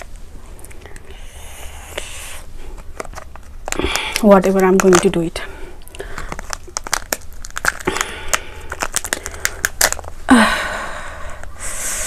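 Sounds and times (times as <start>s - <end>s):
plastic packet crinkling and tearing: 2.0s - 10.3s.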